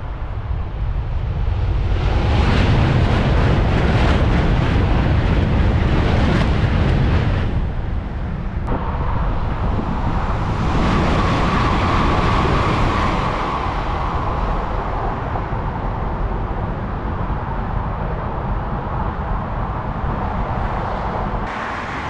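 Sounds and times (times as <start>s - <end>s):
electric train passing at speed: 0.0s - 22.0s.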